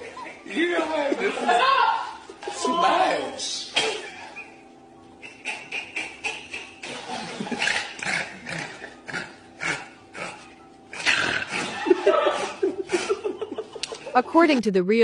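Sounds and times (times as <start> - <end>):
hand fan clacking and snapping: 13.8 - 14.1.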